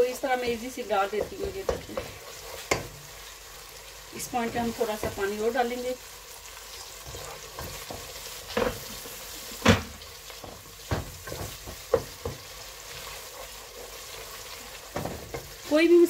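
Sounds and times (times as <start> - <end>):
food sizzling in a pot: 0.0 - 16.0
wooden spoon stirring and scraping: 0.5 - 3.3, 6.8 - 9.6, 10.2 - 15.8.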